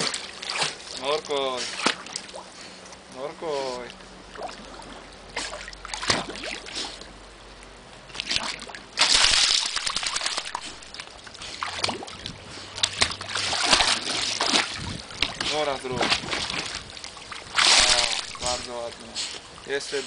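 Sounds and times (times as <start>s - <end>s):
pool water splashing: 0.0s - 7.4s, 8.0s - 20.0s.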